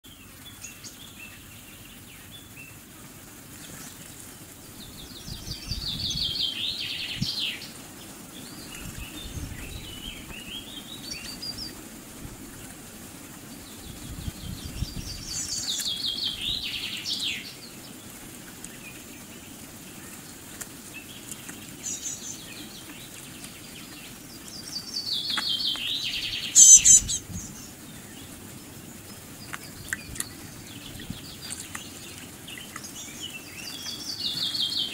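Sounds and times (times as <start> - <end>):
outdoor background: 0.0 - 34.9
songbird trilling: 4.8 - 11.8, 21.8 - 28.3.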